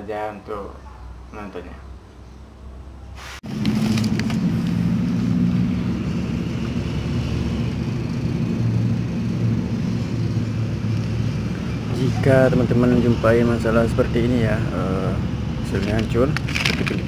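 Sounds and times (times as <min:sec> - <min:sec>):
engine running with low hum: 0:01.9 - 0:17.0.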